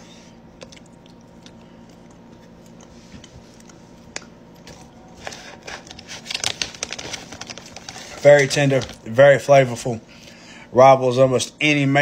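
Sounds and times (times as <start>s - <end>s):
plastic bag crinkling: 4.8s - 9.2s.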